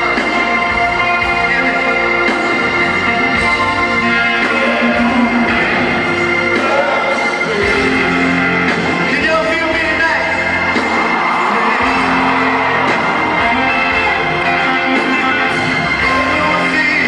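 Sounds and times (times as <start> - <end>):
electric guitar playing: 0.0 - 17.0
rock band chords: 0.0 - 17.0
crowd cheering and whooping: 10.4 - 16.8.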